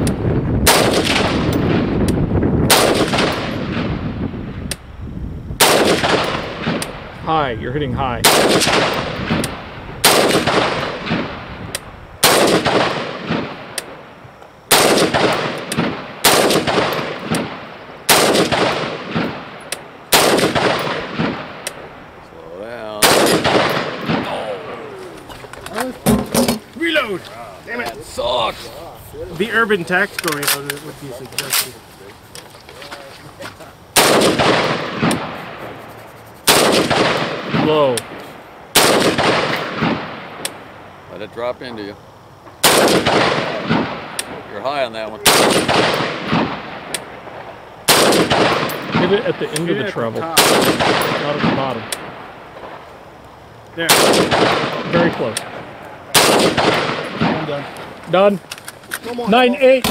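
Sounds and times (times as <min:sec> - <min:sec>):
rifle shots echoing: 0:00.0 - 0:04.2, 0:05.6 - 0:07.2, 0:08.2 - 0:11.6, 0:12.2 - 0:22.0, 0:22.9 - 0:24.5, 0:33.9 - 0:35.6, 0:36.4 - 0:40.8, 0:42.6 - 0:44.6, 0:45.2 - 0:52.9, 0:53.8 - 0:58.3
faint sharp cracks: 0:08.3 - 0:21.9, 0:42.4 - 0:44.5, 0:45.3 - 0:49.7.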